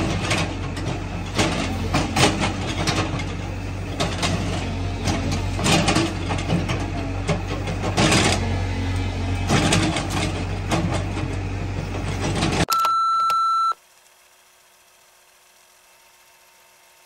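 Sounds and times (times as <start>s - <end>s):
excavator engine humming: 0.0s - 13.7s
high electronic beep: 12.7s - 13.8s.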